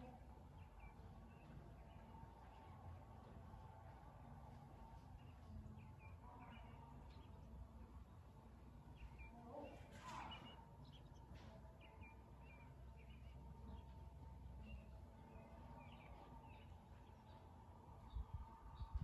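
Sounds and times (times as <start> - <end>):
low steady hum: 0.0 - 19.0
faint bird chirps: 8.9 - 19.0.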